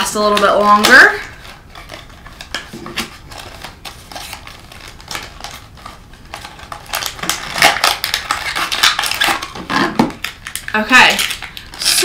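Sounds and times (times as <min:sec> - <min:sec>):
tissue paper crinkling: 0:01.3 - 0:09.6.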